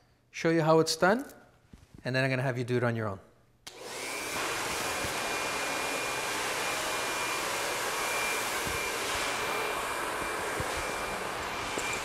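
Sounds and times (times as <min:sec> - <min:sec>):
hair dryer blowing: 0:03.7 - 0:12.0.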